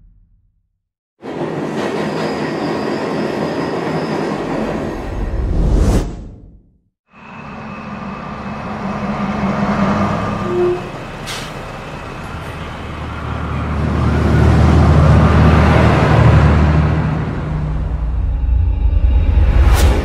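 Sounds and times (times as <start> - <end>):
bus engine running: 7.2 - 18.2.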